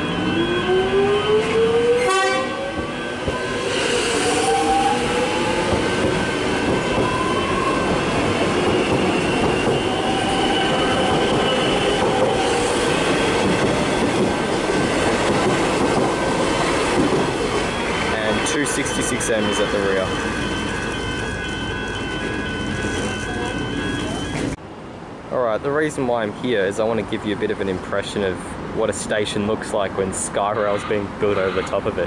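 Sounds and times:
wheels rumbling on rails: 0.0 - 24.6.

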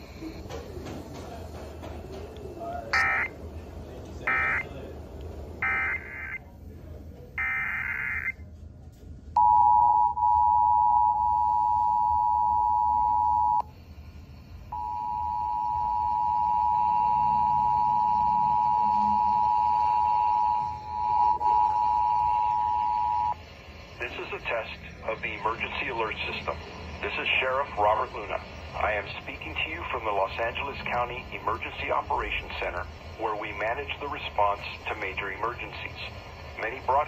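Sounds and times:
two-tone attention signal: 3.0 - 3.3, 4.3 - 4.7, 5.6 - 6.4, 14.8 - 23.4
shrill data bursts: 5.6 - 6.4, 14.8 - 37.0.

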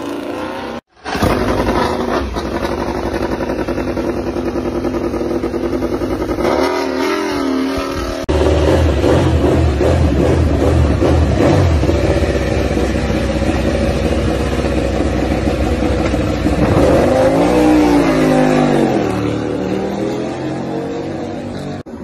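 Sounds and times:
motorcycle engine idling: 1.2 - 6.5, 8.4 - 16.7.

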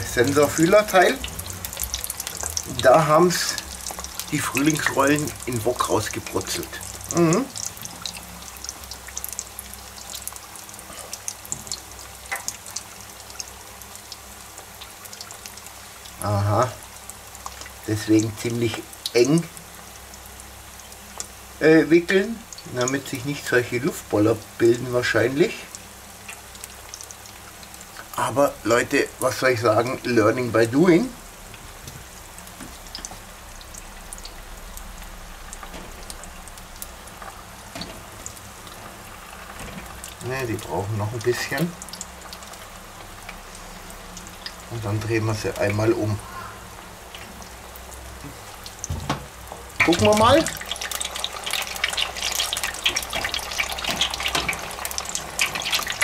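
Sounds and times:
frying crackles and pops: 0.0 - 56.0
oil bubbling and sizzling: 0.0 - 56.0.

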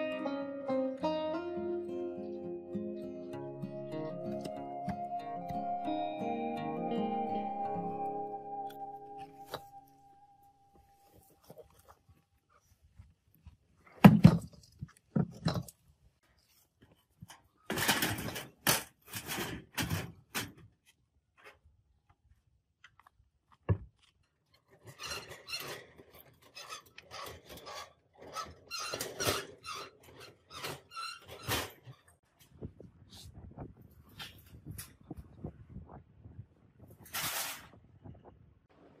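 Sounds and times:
rattling scrapes of hand trolley: 24.7 - 32.1.

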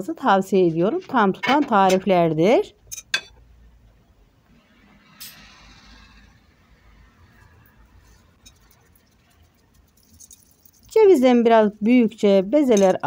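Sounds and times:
hands mixing ground meat: 8.2 - 11.1.

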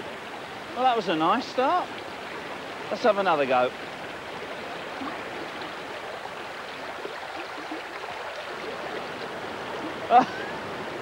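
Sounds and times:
river water rushing over rocks: 0.0 - 11.0.

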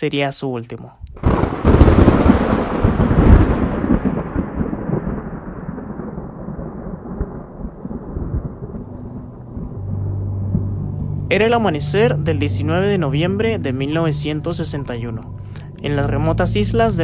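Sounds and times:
thunder crack and rumble: 1.1 - 10.8
low steady tone: 8.2 - 17.0.

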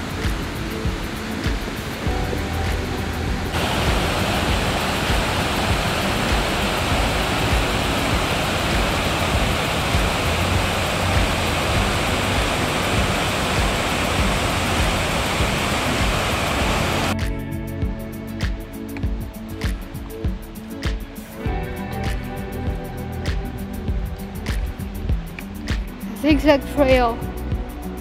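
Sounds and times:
waterfall rushing: 0.0 - 17.2.

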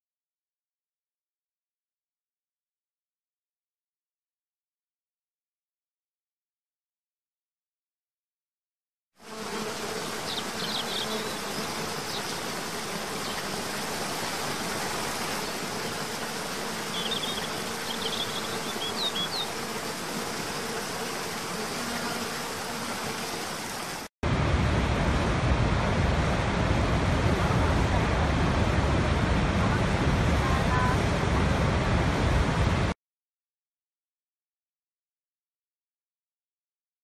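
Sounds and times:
high bird chirps: 10.3 - 12.3, 16.9 - 19.5.

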